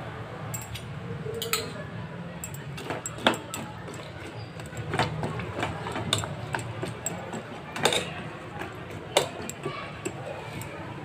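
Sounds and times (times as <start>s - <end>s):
metal spoon knocking on pot: 4.6s - 10.2s.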